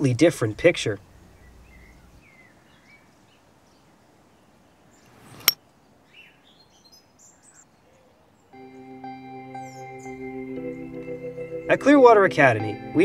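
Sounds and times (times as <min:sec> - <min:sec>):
bird chirps: 0:01.2 - 0:08.6, 0:09.5 - 0:11.0.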